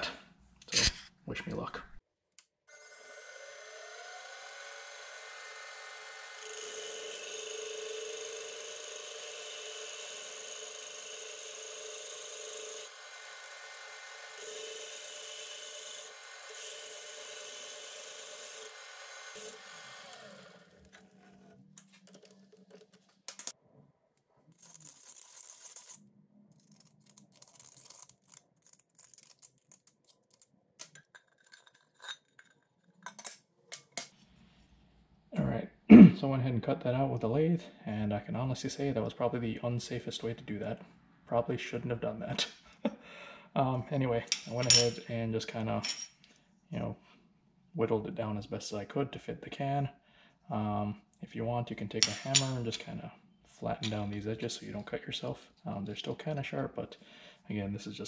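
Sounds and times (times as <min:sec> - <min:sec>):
lathe motor whine: 0:02.7 - 0:21.4.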